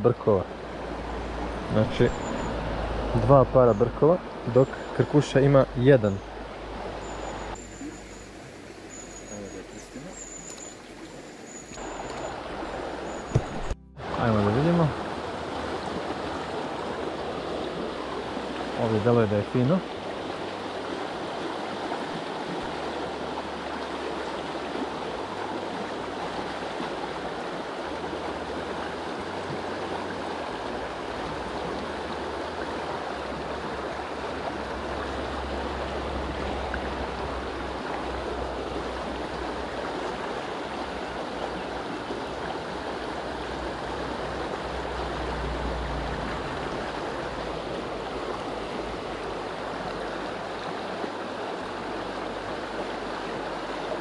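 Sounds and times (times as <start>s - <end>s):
river water rushing: 0.0s - 54.0s
low rumble: 0.6s - 4.6s.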